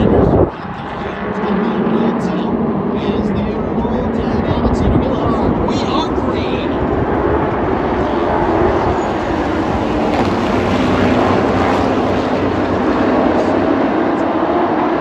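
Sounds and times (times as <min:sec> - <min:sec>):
race truck engines: 0:00.0 - 0:15.0.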